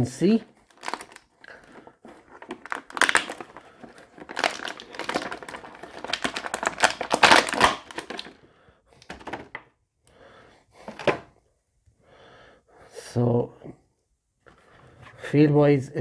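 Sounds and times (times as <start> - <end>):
plastic packaging crinkling: 0.2 - 8.4, 9.0 - 9.6.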